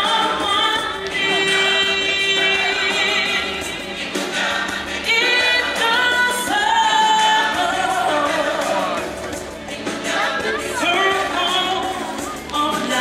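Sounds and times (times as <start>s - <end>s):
choir singing long notes: 0.0s - 9.1s
strong solo voice singing: 0.0s - 13.0s.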